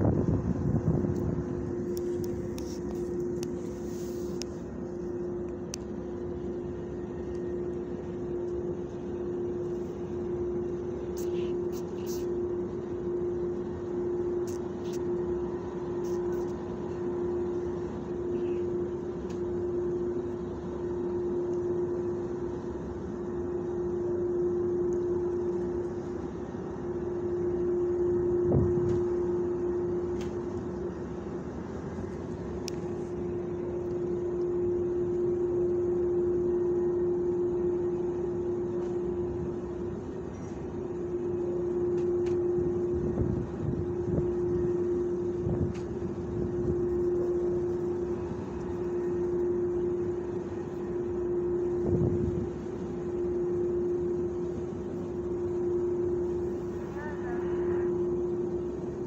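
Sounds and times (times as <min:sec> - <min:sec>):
low rumble: 0:00.0 - 0:07.5
mechanical hum: 0:00.0 - 0:59.0.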